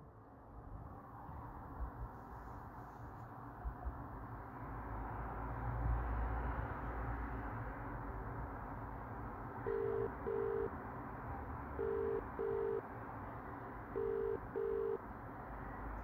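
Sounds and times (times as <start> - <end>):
telephone ringback tone: 9.7 - 10.7, 11.8 - 12.8, 14.0 - 15.0.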